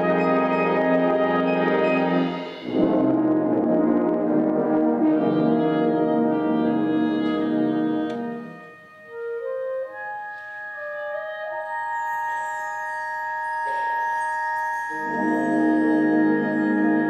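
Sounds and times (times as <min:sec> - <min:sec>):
concert band playing: 0:00.0 - 0:11.9.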